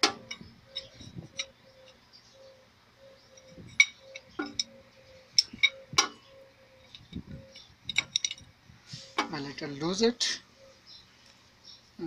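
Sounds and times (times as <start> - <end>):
spanner clinking on metal: 0.0 - 1.6, 3.3 - 4.8, 5.4 - 6.2, 6.8 - 8.5.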